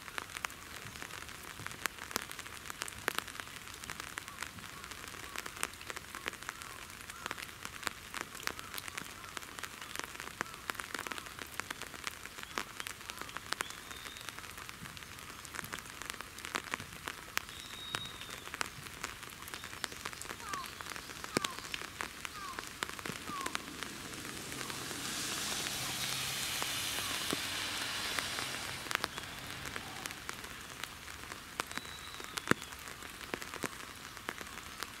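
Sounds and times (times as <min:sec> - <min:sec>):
light rain pattering: 0:00.0 - 0:35.0
loud rushing noise: 0:22.5 - 0:31.1.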